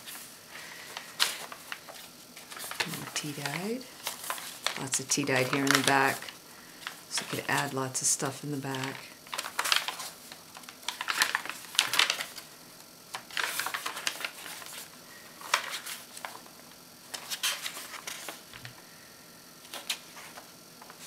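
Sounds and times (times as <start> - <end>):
paper pages turning: 0.0 - 7.8, 8.6 - 12.5, 13.1 - 18.7, 19.6 - 21.0.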